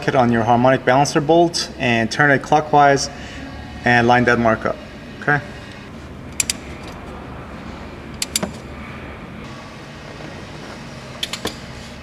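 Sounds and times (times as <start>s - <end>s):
steady low hum: 0.0s - 12.0s
ratchet clicking: 6.3s - 7.0s, 11.2s - 11.6s.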